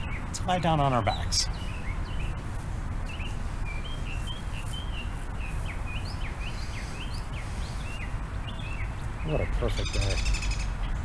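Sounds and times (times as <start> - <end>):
small birds chirping: 0.0 - 11.0
steady low rumble: 0.0 - 11.0.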